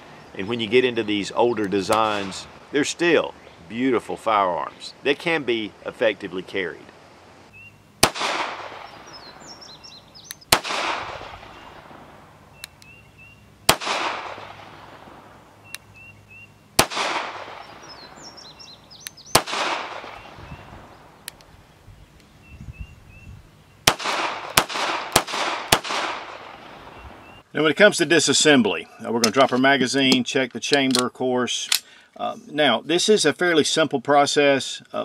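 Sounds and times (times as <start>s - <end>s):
birds chirping: 0.0s - 6.8s, 7.4s - 30.2s
pistol shots echoing: 8.0s - 9.6s, 10.5s - 12.1s, 13.7s - 15.3s, 16.8s - 18.4s, 19.3s - 20.4s, 23.8s - 26.8s.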